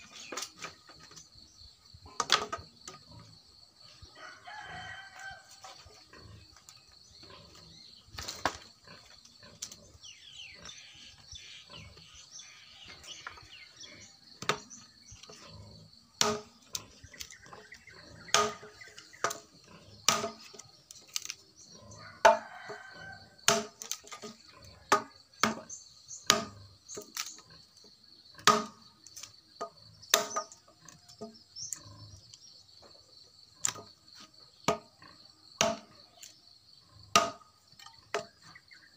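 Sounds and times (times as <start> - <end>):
rooster crowing: 4.1 - 5.7, 21.9 - 23.4
knife chopping dry branches: 16.2 - 16.5, 20.1 - 21.4, 23.4 - 24.1, 35.6 - 35.9, 37.2 - 37.4.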